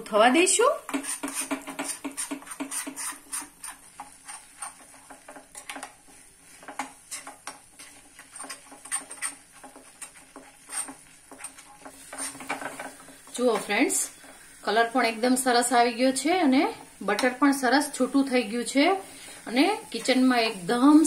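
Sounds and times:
metal spoon scraping steel pan: 0:00.9 - 0:14.4.

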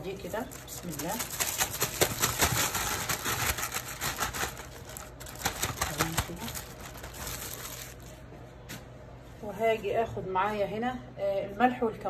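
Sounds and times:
plastic freezer bag crinkling: 0:00.0 - 0:08.3.

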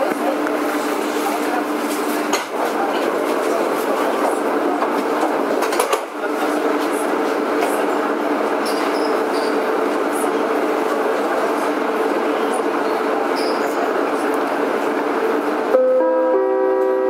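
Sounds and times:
train rumbling at speed: 0:00.0 - 0:17.0.

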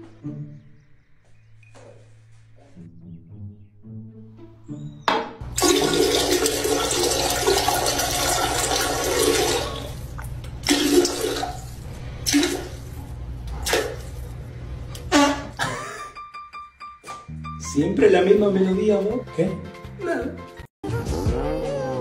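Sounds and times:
soft background music: 0:00.0 - 0:07.0, 0:15.6 - 0:22.0.

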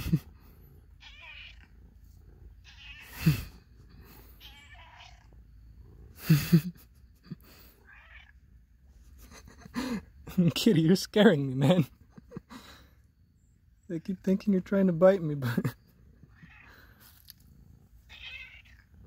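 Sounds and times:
cat meowing loudly: 0:01.0 - 0:01.7, 0:02.6 - 0:03.3, 0:04.4 - 0:05.3, 0:07.8 - 0:08.3, 0:16.3 - 0:16.8, 0:18.1 - 0:18.8.

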